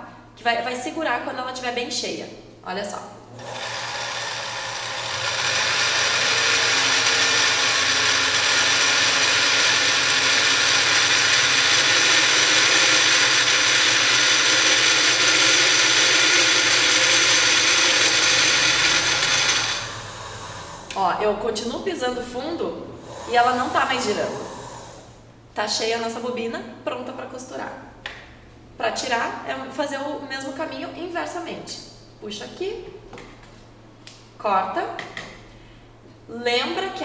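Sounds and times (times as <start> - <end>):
sewing machine whirring: 3.3 - 21.0.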